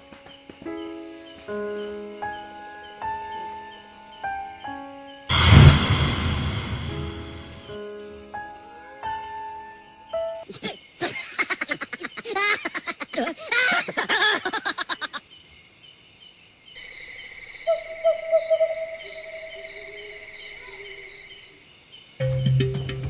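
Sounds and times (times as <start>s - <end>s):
night insects chirring: 0.0s - 5.3s, 7.5s - 22.9s
low held tone: 5.3s - 7.7s
woman cackling laugh: 11.0s - 15.2s.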